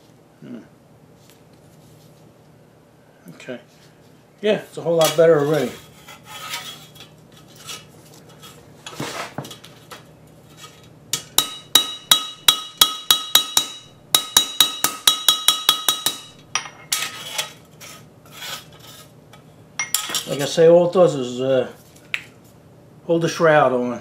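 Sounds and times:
hammer striking steel plate: 11.2s - 16.8s.

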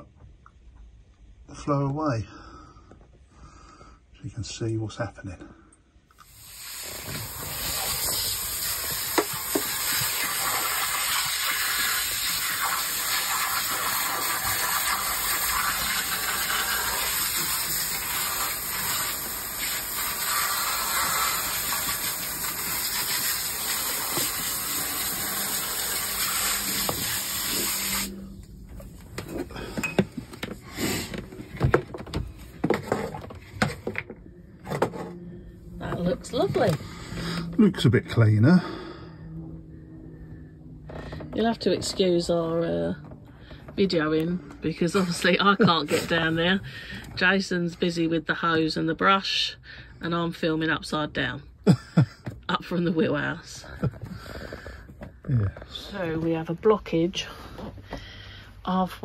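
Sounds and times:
hose spraying water: 6.2s - 29.0s, 45.0s - 46.9s.

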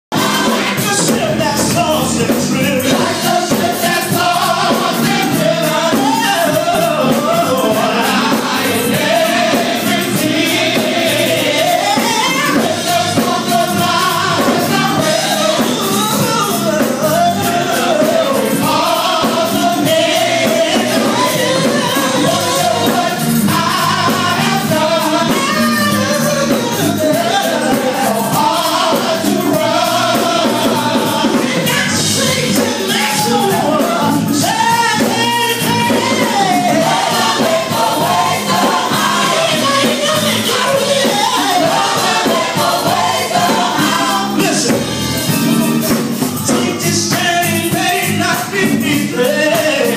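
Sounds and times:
lead singer over a band: 0.1s - 49.9s
many voices singing along: 0.1s - 49.9s.

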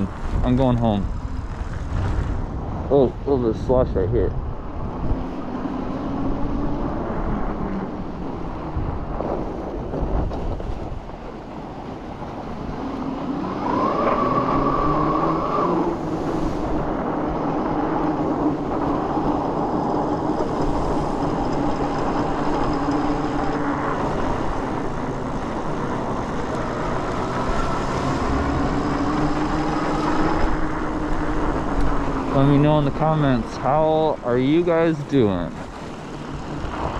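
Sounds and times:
tyres on slushy road: 0.0s - 36.9s
wind rush: 0.0s - 36.9s.

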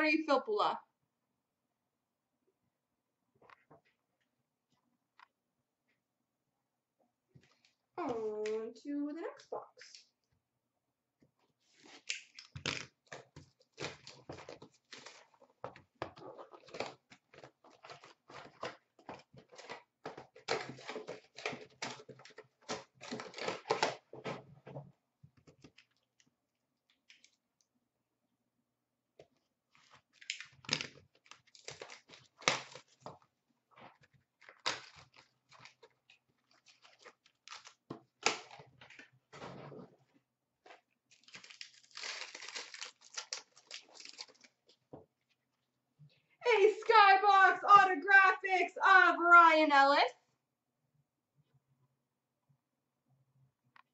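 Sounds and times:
tearing and crinkling wrappers: 11.6s - 24.4s, 29.7s - 39.2s, 40.7s - 44.8s.

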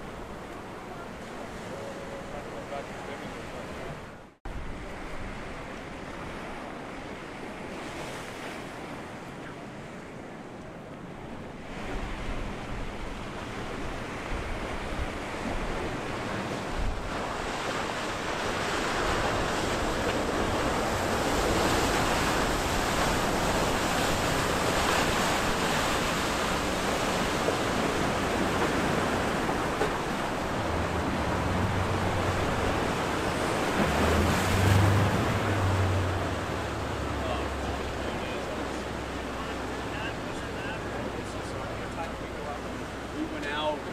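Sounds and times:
surf and wake wash hissing: 0.0s - 43.9s
yacht engines humming: 8.7s - 43.9s.

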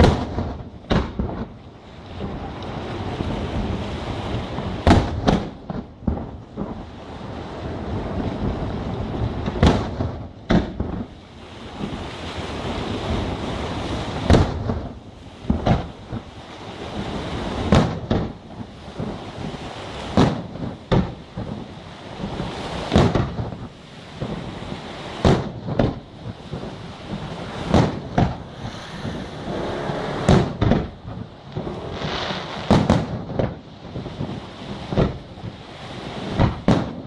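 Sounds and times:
firework shells booming: 0.0s - 1.6s, 4.6s - 6.8s, 9.3s - 11.1s, 14.2s - 16.3s, 17.6s - 19.2s, 20.0s - 37.0s
continuous rushing noise: 0.0s - 37.0s.

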